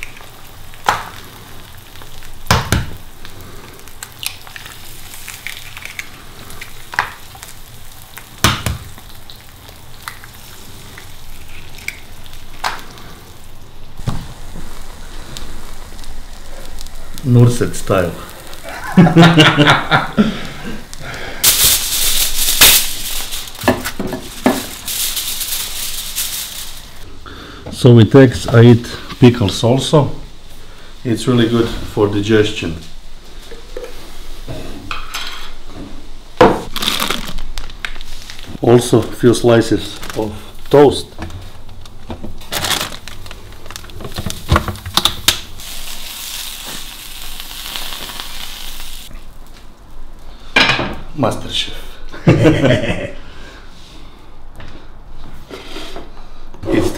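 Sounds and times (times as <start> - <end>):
eggs sizzling in a pan: 0.0 - 27.1, 28.2 - 51.2
foil bag crinkling: 21.0 - 27.0, 36.7 - 49.4.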